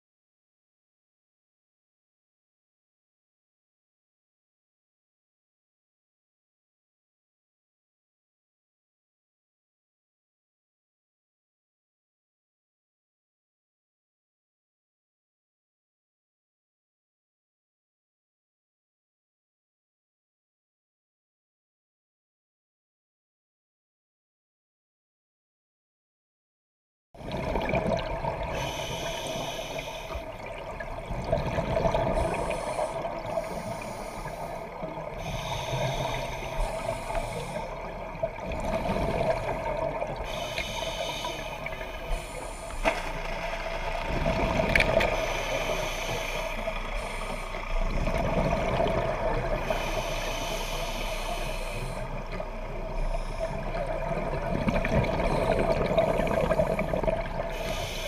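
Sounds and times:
steady hum: 0:28.5 - 0:54.2
underwater regulator bubbling exhalations: 0:30.0 - 0:40.9.

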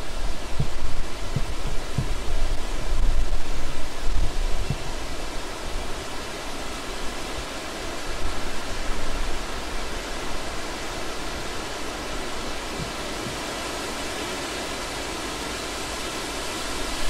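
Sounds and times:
low rumbling gusts: 0:00.0 - 0:15.5
stream water rushing: 0:00.0 - 0:17.0.

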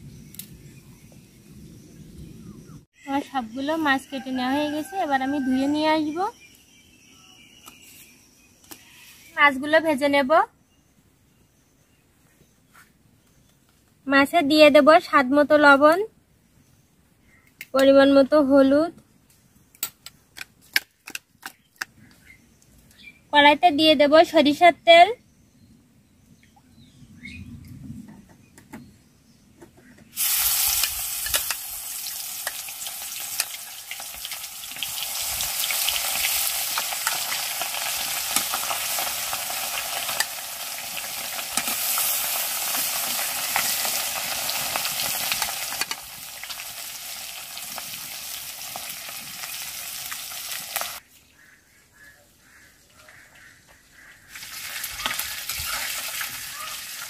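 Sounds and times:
fish sizzling in hot oil: 0:30.2 - 0:51.0, 0:54.3 - 0:57.0.

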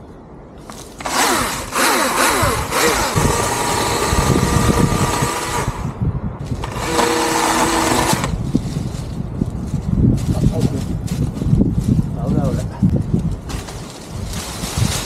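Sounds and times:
electric chainsaw cutting branches: 0:01.0 - 0:08.4.

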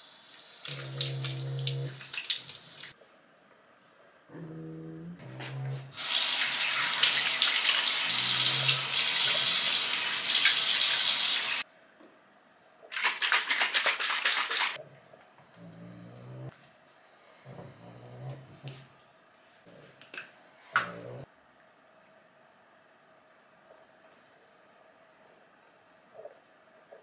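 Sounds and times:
water splashing: 0:12.9 - 0:14.8.

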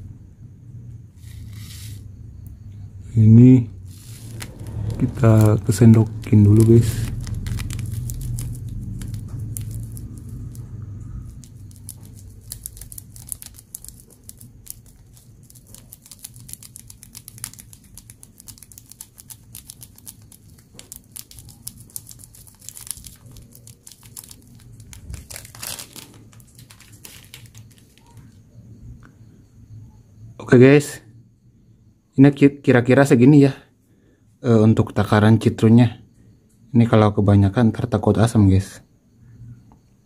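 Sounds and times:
low rumble: 0:00.2 - 0:13.4
plastic bag crinkling: 0:03.9 - 0:28.4.

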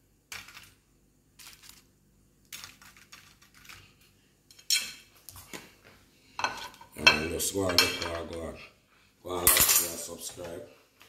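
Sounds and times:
kitchen items clattering: 0:06.4 - 0:08.5.

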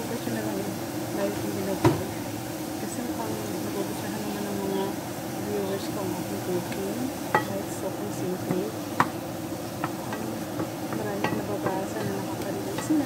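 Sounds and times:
food sizzling in pan: 0:00.0 - 0:13.0
spoon tapping and scraping pan: 0:06.7 - 0:07.6, 0:08.4 - 0:13.0.

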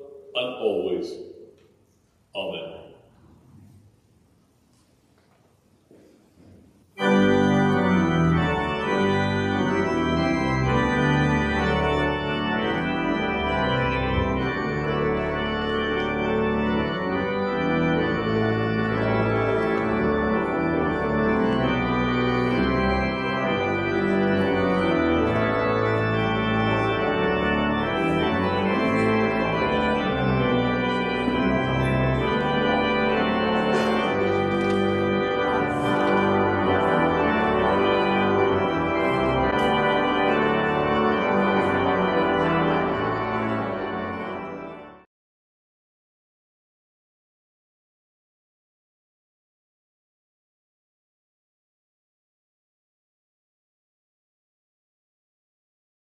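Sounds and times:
church organ chords: 0:00.0 - 0:01.6, 0:02.3 - 0:03.2, 0:06.8 - 0:45.1.

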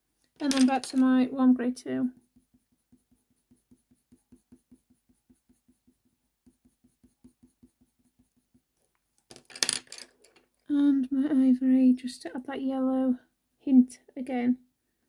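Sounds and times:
pencil strokes on paper: 0:01.0 - 0:08.8.

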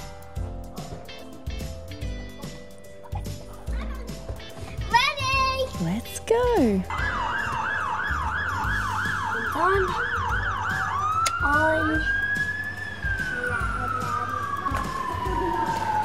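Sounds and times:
fire engine siren: 0:06.9 - 0:16.0.

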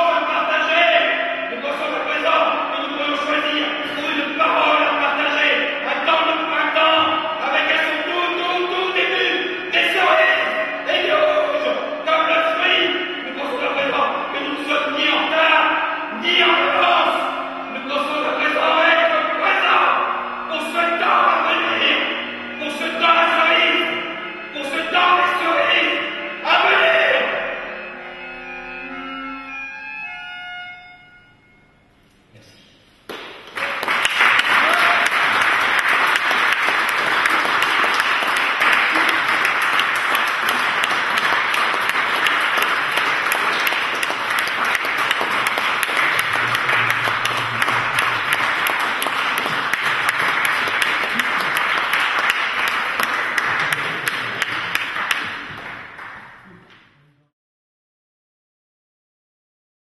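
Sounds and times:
music: 0:00.0 - 0:57.3
audience applause: 0:33.1 - 0:56.4.

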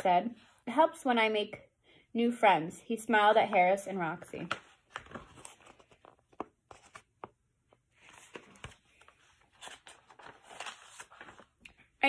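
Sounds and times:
book pages rustling: 0:04.2 - 0:11.9.

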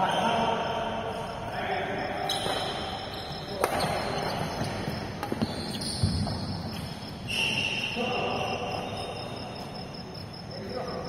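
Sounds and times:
crickets chirping: 0:00.0 - 0:11.0
racket striking shuttlecock: 0:03.6 - 0:04.2.

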